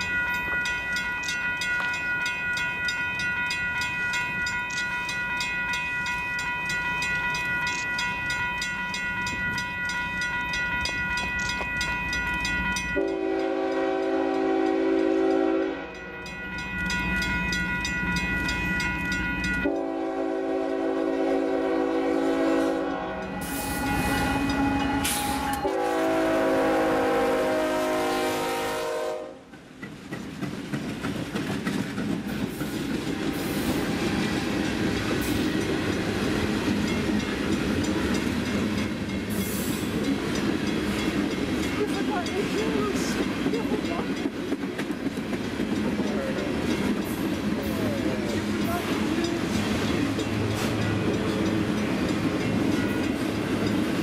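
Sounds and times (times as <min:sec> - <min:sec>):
bell ringing: 0:00.0 - 0:13.5, 0:15.9 - 0:19.9, 0:23.2 - 0:25.8
train rumble: 0:00.0 - 0:54.0
train horn blasts: 0:12.9 - 0:16.3, 0:19.6 - 0:29.5.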